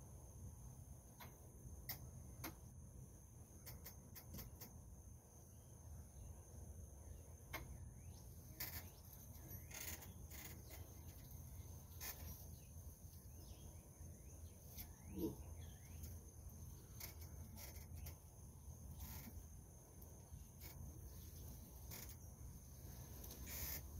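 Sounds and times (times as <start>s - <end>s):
high insect drone: 0.0s - 23.9s
faint bird chirps: 5.5s - 23.9s.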